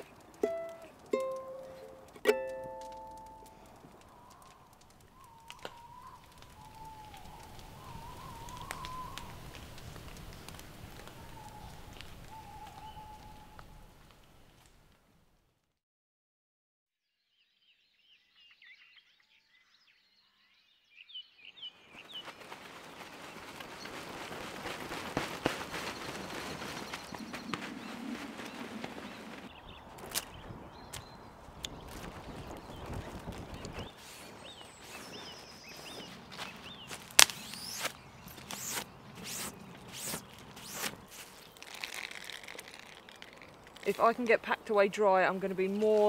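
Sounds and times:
birds singing: 0:04.0 - 0:09.4, 0:11.0 - 0:13.7, 0:17.4 - 0:22.5, 0:25.8 - 0:41.8
plastic tarp rustling: 0:21.9 - 0:30.3, 0:31.8 - 0:44.6
damp cloth rustling: 0:22.0 - 0:29.5
cloth swishing wiping strokes: 0:38.5 - 0:41.3.

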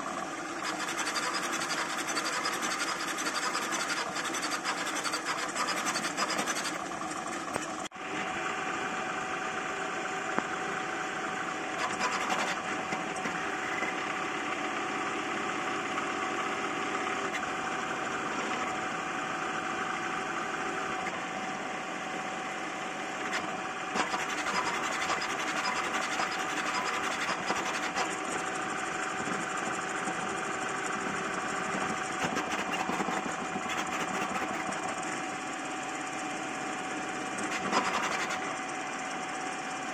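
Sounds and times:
stepper motors whirring and buzzing: 0:00.0 - 0:08.4, 0:10.4 - 0:14.6, 0:16.9 - 0:21.6, 0:23.2 - 0:35.2, 0:37.1 - 0:38.8.

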